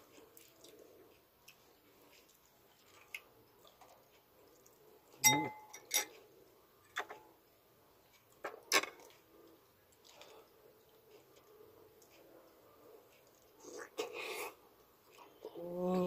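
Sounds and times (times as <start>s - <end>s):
metal spoon clinking on glass bowl: 5.2s - 6.1s.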